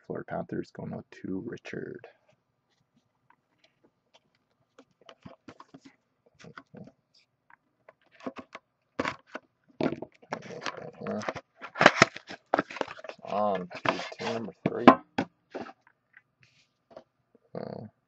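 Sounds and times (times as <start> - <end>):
light taps and scrapes of handling: 2.2 - 6.9, 10.0 - 14.9, 15.5 - 17.1
plastic wrap crinkling: 10.2 - 14.4.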